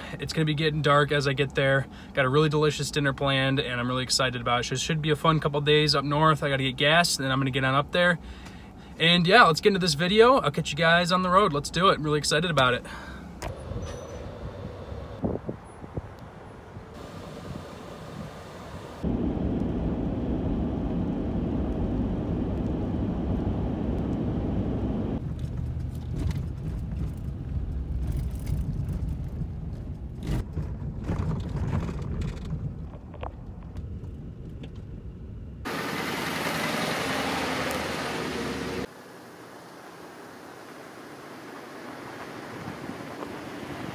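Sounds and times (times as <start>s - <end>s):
tyres rushing on dirt road: 0.0s - 19.6s, 25.2s - 43.9s
truck engine and road rumble: 0.0s - 43.9s
rattles and knocks in cab: 25.3s - 33.8s.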